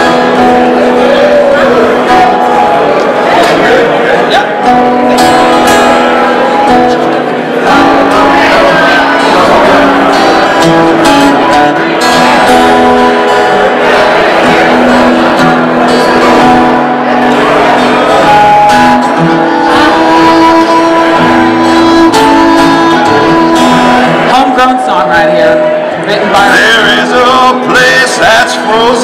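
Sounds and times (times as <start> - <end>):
acoustic guitar playing: 0.0 - 29.0
fiddle playing long notes: 4.6 - 25.0.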